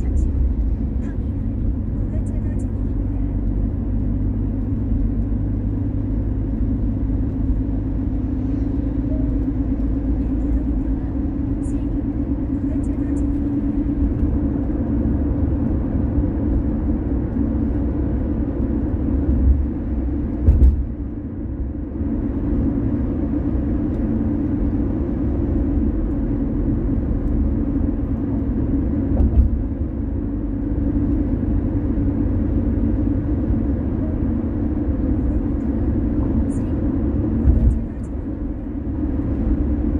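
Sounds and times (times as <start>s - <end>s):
car tyre and engine rumble: 0.0s - 39.9s
car thumps: 20.4s - 21.0s, 29.1s - 29.7s.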